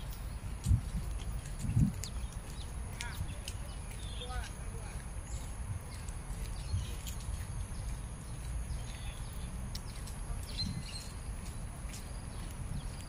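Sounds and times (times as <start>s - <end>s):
bird chirps: 5.2s - 13.0s.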